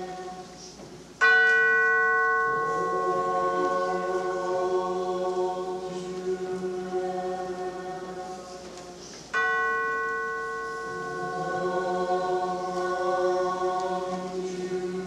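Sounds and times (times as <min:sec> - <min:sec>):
chime ringing: 0:01.2 - 0:05.0, 0:09.3 - 0:13.4
held chord: 0:01.2 - 0:08.6, 0:09.3 - 0:15.0.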